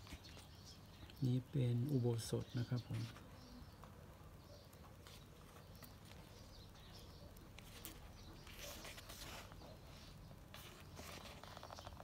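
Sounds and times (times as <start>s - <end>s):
book page turning: 7.6s - 12.0s.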